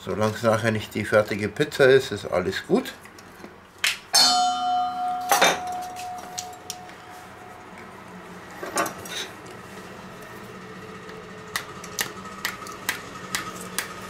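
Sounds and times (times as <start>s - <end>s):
steel bowl ringing: 4.2s - 7.8s.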